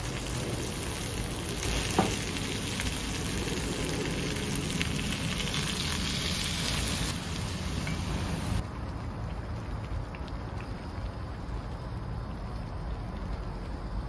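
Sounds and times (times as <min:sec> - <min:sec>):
food sizzling in frying pan: 0:00.0 - 0:08.6
water poured into hot pan: 0:00.0 - 0:11.6.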